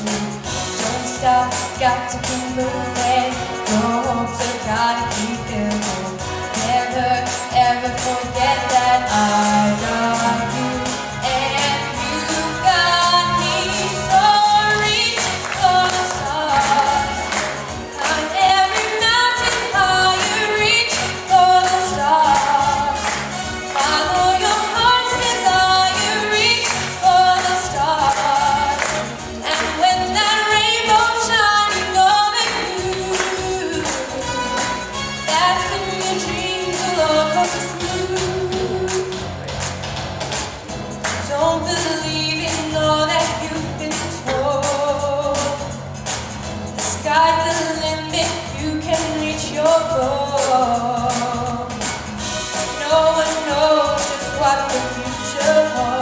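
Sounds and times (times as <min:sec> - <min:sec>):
instrumental accompaniment with beat: 0:00.0 - 0:56.0
girl singing into microphone: 0:00.8 - 0:17.2.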